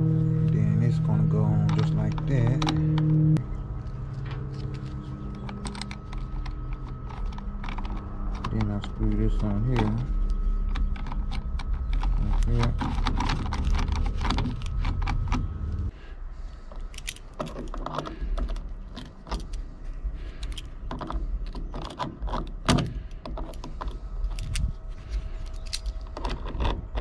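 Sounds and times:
low rumble: 0.0s - 17.4s, 22.9s - 27.0s
small metal clicks and rattles: 4.2s - 10.0s, 25.4s - 27.0s.

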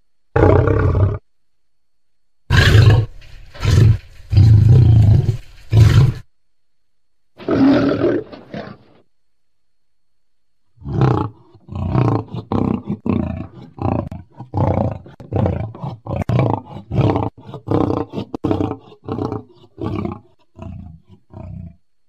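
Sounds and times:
lion roaring and growling: 2.5s - 6.3s, 7.4s - 9.0s, 10.8s - 21.8s.

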